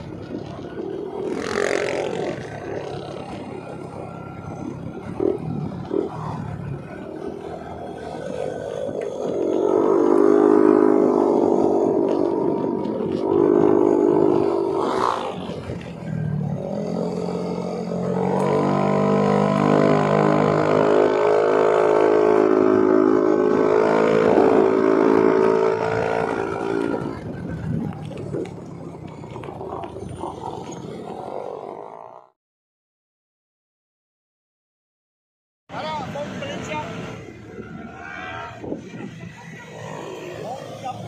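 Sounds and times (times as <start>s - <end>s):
scooter engine running: 0.0s - 32.2s.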